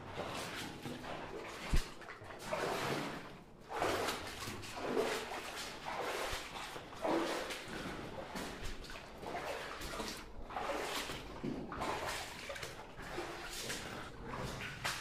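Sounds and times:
person wading through water: 0.0s - 15.0s.

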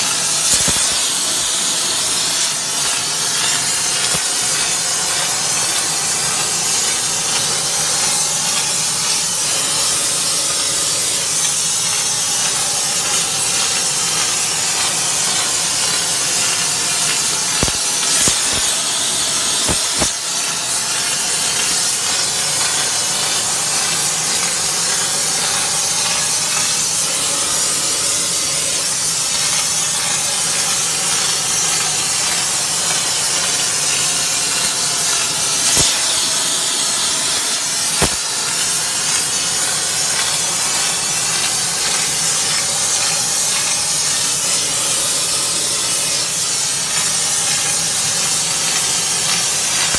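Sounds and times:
gas torch hissing: 0.0s - 49.9s
sharp clicks: 0.4s - 1.2s, 15.3s - 20.2s, 35.1s - 42.6s.

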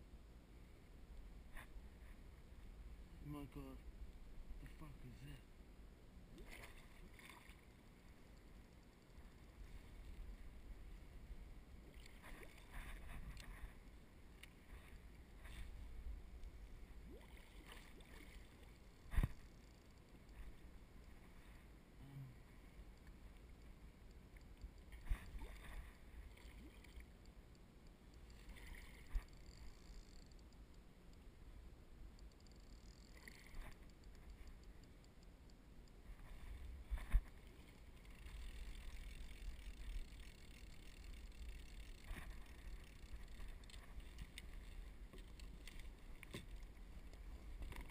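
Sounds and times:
faint ticks: 6.3s - 11.0s, 11.8s - 47.9s
water lapping against hull: 6.3s - 21.6s, 24.2s - 27.3s, 28.2s - 30.4s, 36.0s - 47.9s.

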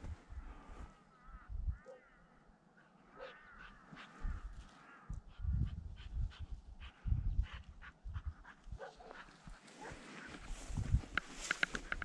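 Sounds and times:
rustling through scrub: 9.3s - 12.0s.

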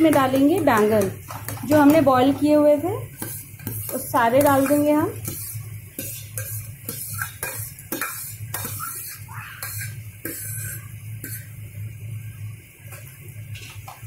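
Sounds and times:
steady low hum: 0.0s - 13.5s
ladle scraping metal bowl: 3.1s - 11.5s.

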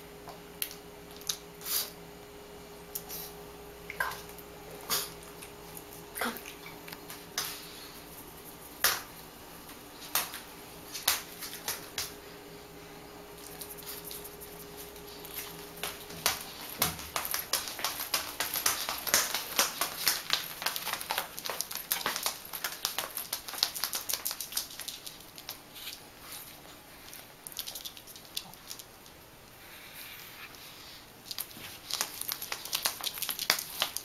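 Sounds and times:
dog paws tapping on wooden floor: 8.3s - 12.2s, 13.4s - 25.6s, 31.3s - 34.0s.

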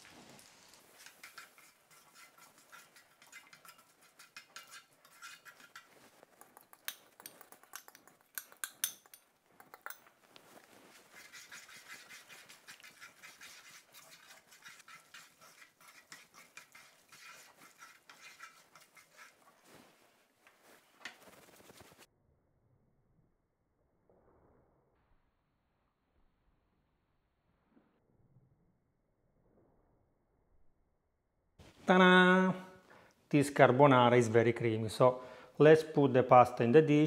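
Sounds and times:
faint steady hiss: 0.0s - 2.6s
chopsticks stirring spaghetti in pan: 0.0s - 21.2s.

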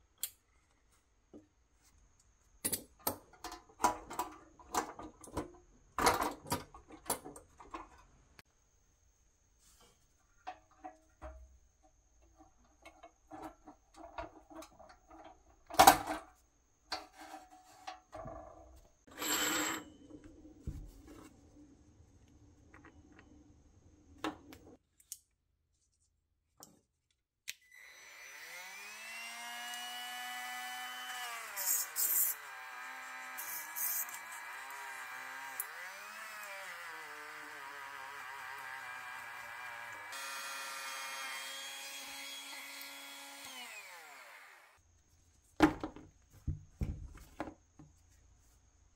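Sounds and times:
rotary tool whining: 27.7s - 44.8s.

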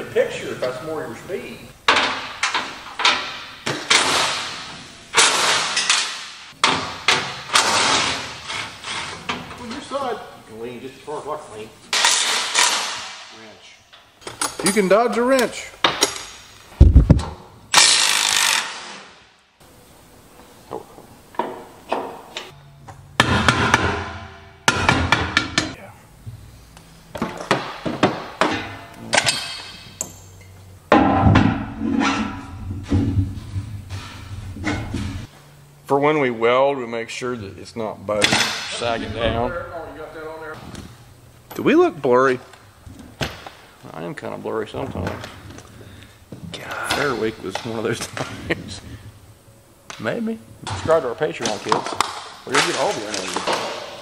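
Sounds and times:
metal bangs on auger tube: 23.2s - 25.8s, 30.9s - 33.2s.

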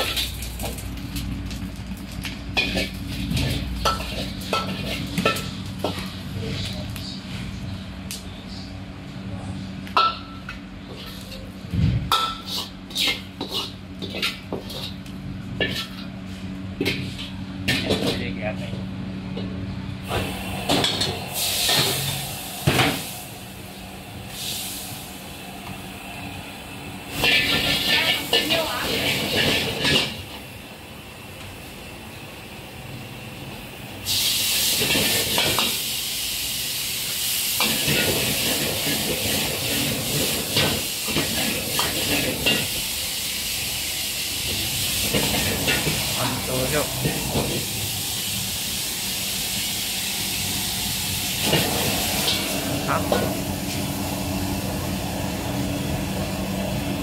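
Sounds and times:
food sizzling in a wok: 0.0s - 7.0s, 12.1s - 18.1s, 20.1s - 57.0s
metal ladle scraping a wok: 12.1s - 15.0s, 15.6s - 16.1s, 27.1s - 30.2s.

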